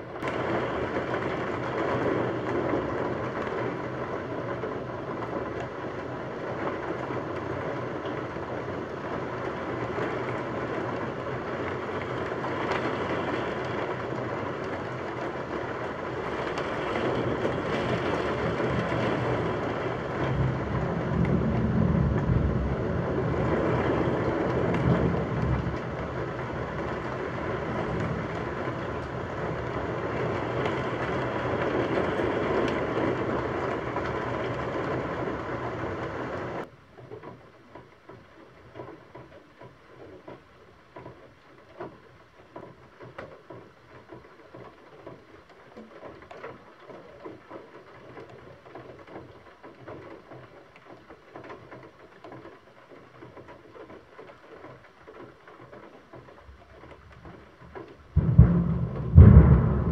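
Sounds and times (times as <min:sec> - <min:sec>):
steady rain falling: 0:00.0 - 0:59.9
thunder rolling: 0:06.4 - 0:36.7, 0:58.1 - 0:59.9.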